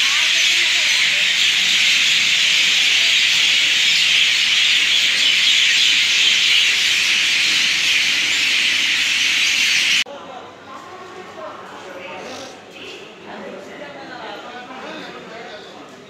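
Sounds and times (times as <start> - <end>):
many birds chirping: 0.0 - 10.0.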